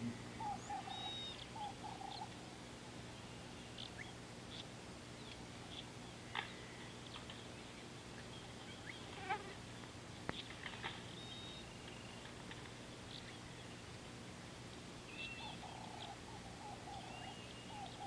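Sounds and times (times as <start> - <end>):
low hum: 0.0 - 17.6
faint high bird chirps: 0.4 - 2.4, 11.1 - 12.3, 15.1 - 18.0.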